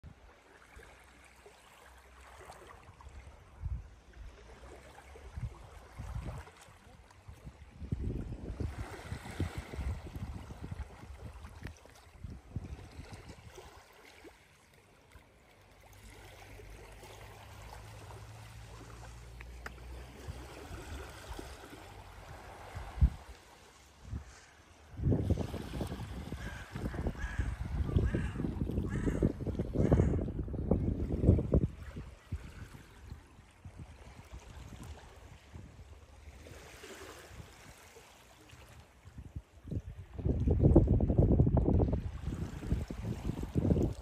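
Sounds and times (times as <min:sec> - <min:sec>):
wind buffeting microphone: 0:05.3 - 0:06.6, 0:07.2 - 0:13.6, 0:22.1 - 0:23.3, 0:24.0 - 0:36.0, 0:39.0 - 0:44.0.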